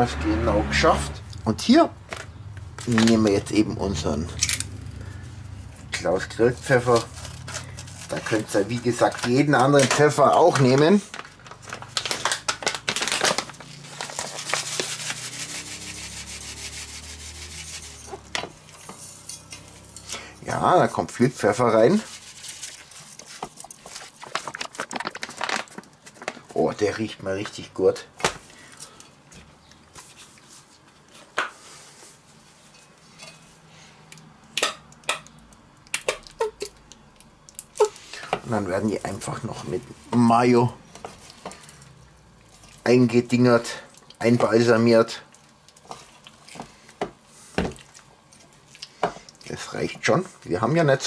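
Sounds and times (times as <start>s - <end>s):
spice bag crinkling: 6.5s - 17.7s, 21.8s - 26.5s.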